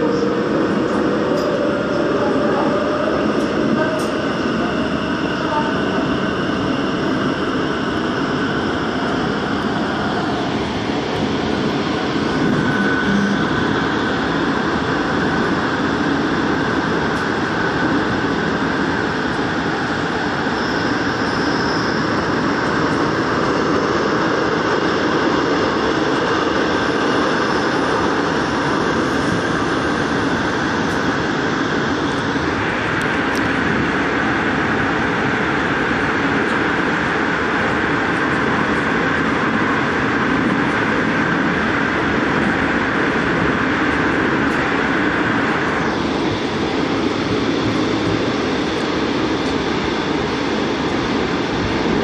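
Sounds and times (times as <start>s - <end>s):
train wheels rumbling on rail: 0.0s - 52.0s.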